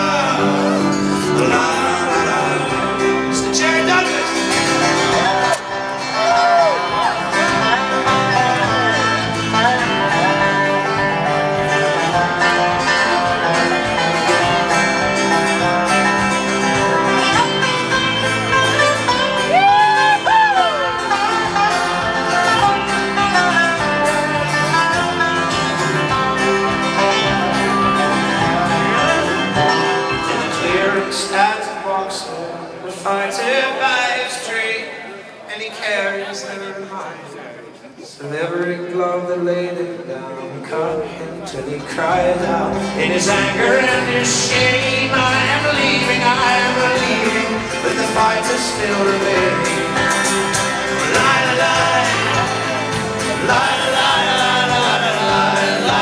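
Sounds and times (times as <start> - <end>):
slide guitar: 0.0 - 34.6, 39.8 - 56.0
strummed acoustic guitar: 0.0 - 34.6, 38.3 - 56.0
person singing: 0.0 - 35.0, 38.3 - 56.0.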